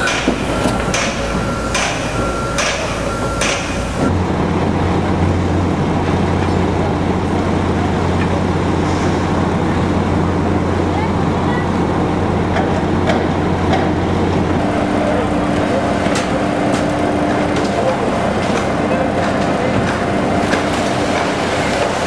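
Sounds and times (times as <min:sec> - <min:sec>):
sharp metal knocks: 0:00.0 - 0:03.9
high steady tone: 0:00.0 - 0:04.1.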